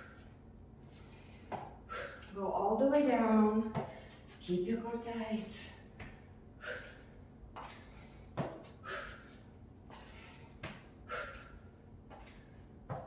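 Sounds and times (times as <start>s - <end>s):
woman's sharp exhalations: 1.1s - 2.3s, 8.8s - 9.3s, 10.1s - 11.5s
sneakers thumping on floor mat: 3.7s - 4.1s, 8.4s - 8.8s, 12.1s - 13.0s.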